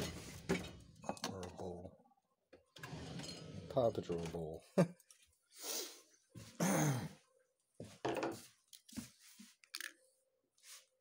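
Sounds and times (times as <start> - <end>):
drawer sliding shut: 0.0 - 1.0, 2.8 - 4.3.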